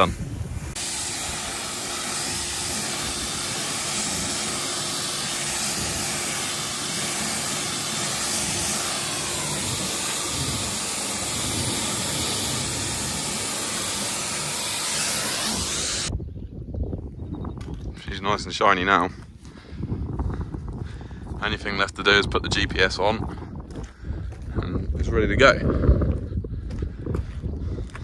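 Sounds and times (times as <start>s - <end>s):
pressure washer spraying metal: 0.7s - 16.1s.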